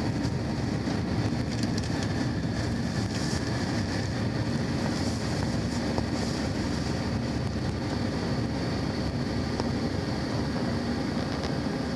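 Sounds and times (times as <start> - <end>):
jet engine and air rush in cabin: 0.0 - 11.9.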